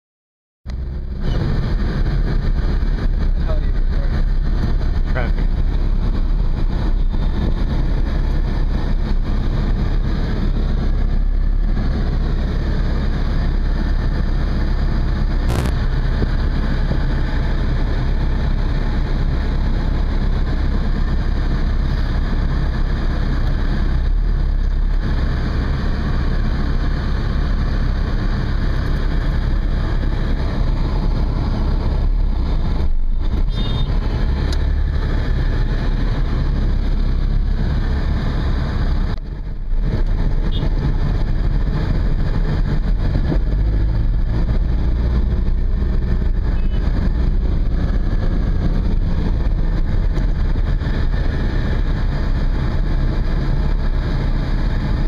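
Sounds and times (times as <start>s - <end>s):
car engine and traffic noise: 0.6s - 55.0s.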